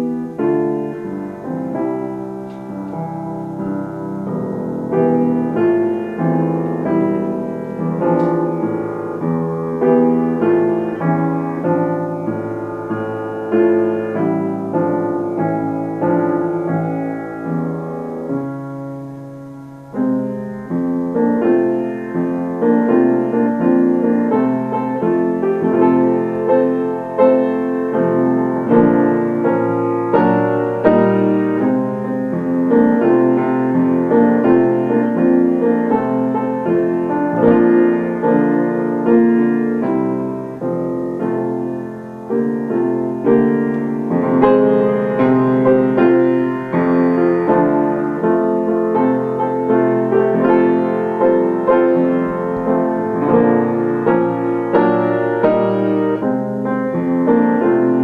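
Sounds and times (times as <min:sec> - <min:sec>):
grand piano playing: 0:00.0 - 0:58.0.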